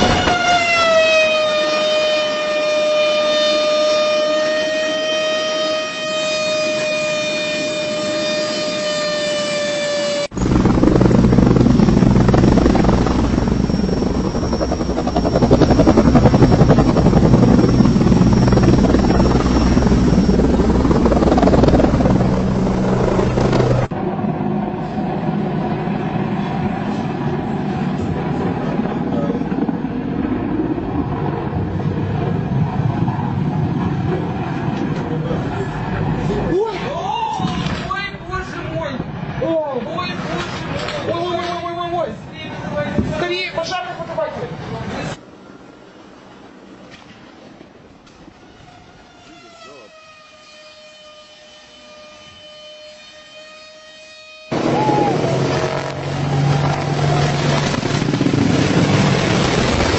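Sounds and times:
helicopter rotor and engine: 0:00.0 - 0:49.9, 0:54.5 - 0:59.9
alarm-like tone: 0:03.3 - 0:23.8.

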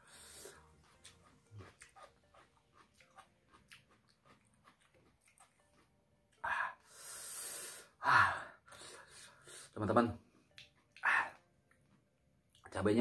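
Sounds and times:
mouth clicks and lip smacks: 0:00.9 - 0:05.9, 0:10.5 - 0:12.7
sharp breath: 0:06.5 - 0:09.8.

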